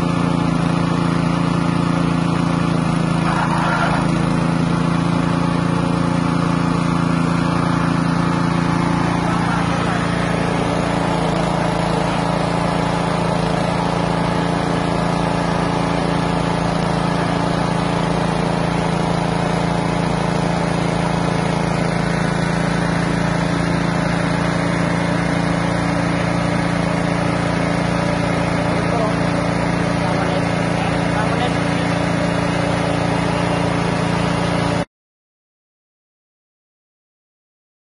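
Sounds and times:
small engine running steadily: 0.0s - 34.9s.

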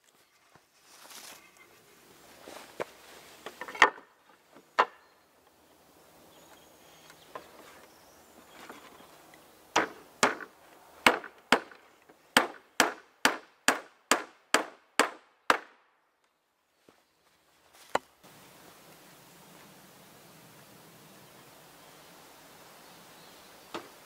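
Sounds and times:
hammering on wooden roof: 9.7s - 15.8s.

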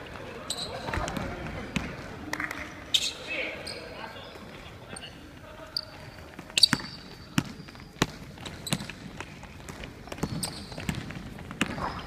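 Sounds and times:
sneakers squeaking on floor: 0.1s - 2.1s, 2.9s - 12.0s
basketball bouncing on wooden floor: 6.7s - 12.0s.

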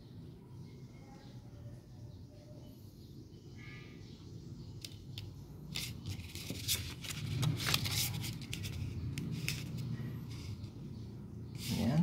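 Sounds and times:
paper rustling and crinkling: 5.7s - 10.6s.

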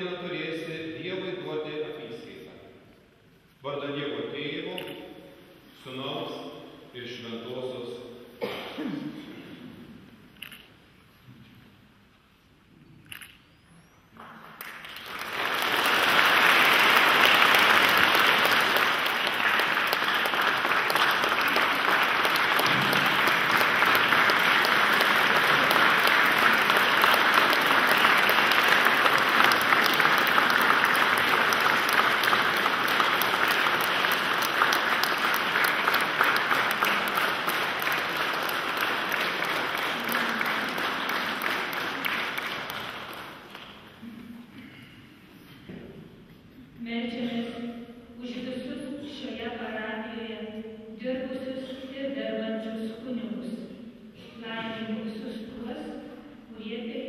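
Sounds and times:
crowd clapping: 14.2s - 44.0s.

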